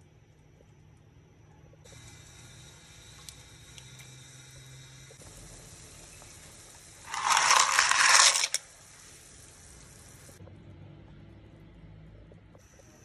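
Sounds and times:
faint steady hiss: 0:00.0 - 0:10.4
pasta clattering into metal pot: 0:07.1 - 0:08.6.

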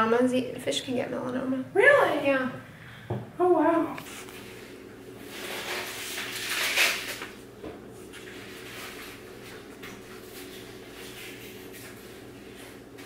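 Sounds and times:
low steady hum: 0:00.0 - 0:13.0
plastic bags and paper rustling: 0:05.2 - 0:07.4, 0:08.0 - 0:13.0.

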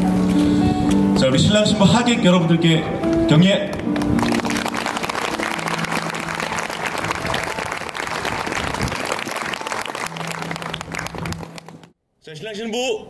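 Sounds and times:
crowd applauding: 0:03.9 - 0:11.9.

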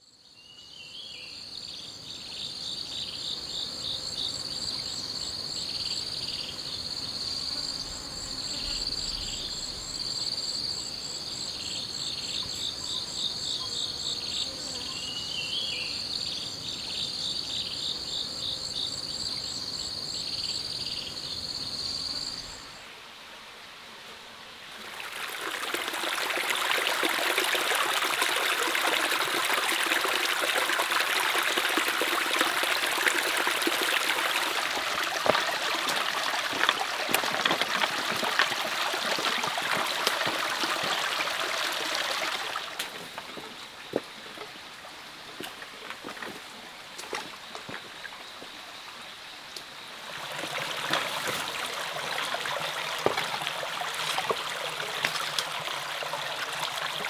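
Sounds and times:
insects trilling: 0:00.0 - 0:23.0, 0:24.7 - 0:57.0
stream splashing over rocks: 0:24.7 - 0:48.2, 0:49.9 - 0:57.0.

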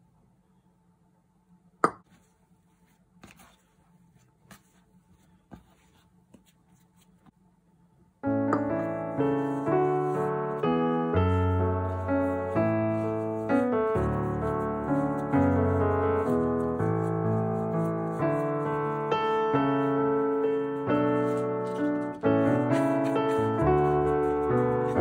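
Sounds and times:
piano music: 0:08.2 - 0:25.0.

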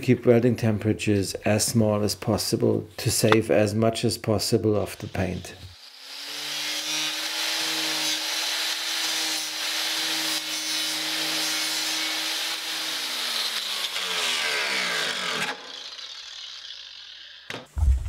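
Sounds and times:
angle grinder grinding metal: 0:04.7 - 0:17.7
grinder winding down: 0:12.1 - 0:17.6.

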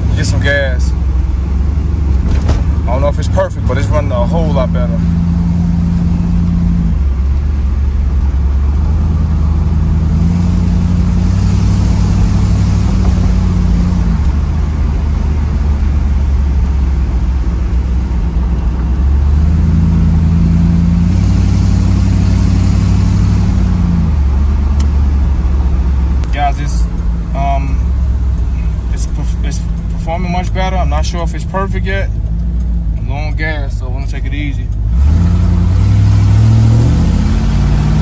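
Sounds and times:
car engine and exhaust: 0:00.0 - 0:38.0
road noise: 0:00.0 - 0:38.0.

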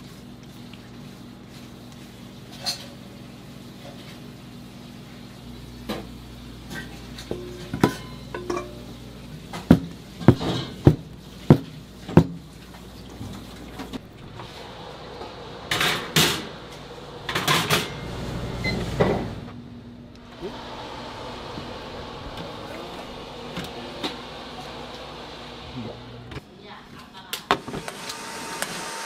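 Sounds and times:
clinks of bowl and pans: 0:06.7 - 0:08.9.

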